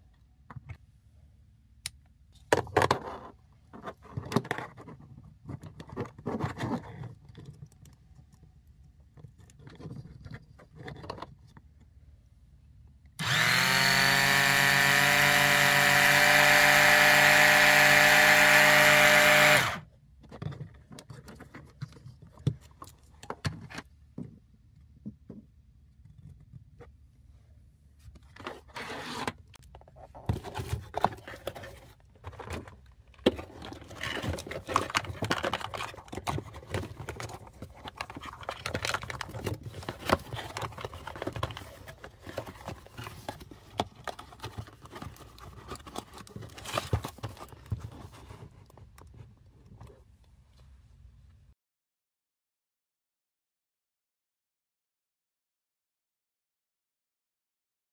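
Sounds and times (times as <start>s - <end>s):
clicks and rustles of handling: 1.9s - 12.0s, 20.1s - 27.0s, 28.0s - 50.9s
electric pump motor whining: 13.2s - 19.8s.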